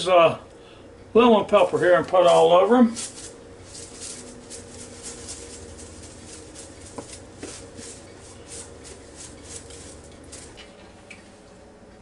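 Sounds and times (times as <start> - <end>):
spice shaker rattling: 2.3 - 10.6.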